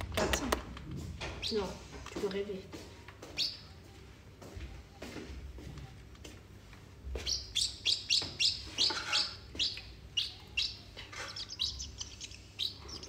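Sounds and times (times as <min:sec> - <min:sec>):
bird chirping: 0:03.3 - 0:03.8, 0:07.1 - 0:13.0.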